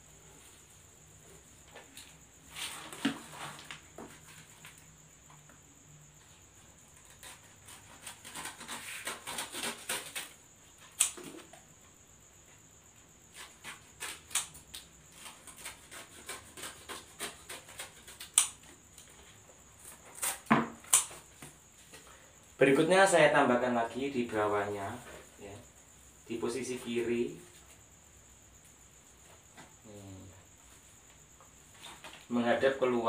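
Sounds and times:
sharp clicks and snaps: 11.0s - 11.3s, 14.3s - 14.9s, 18.2s - 18.6s, 20.9s - 21.2s.

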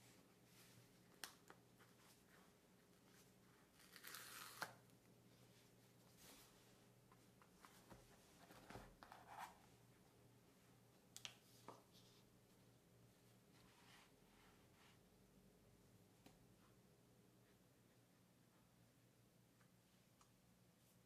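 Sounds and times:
cardboard seal tearing: 3.8s - 4.8s.

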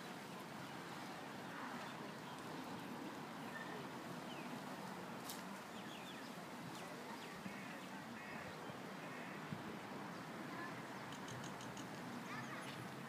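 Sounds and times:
bird calls and chirps: 11.0s - 12.9s.

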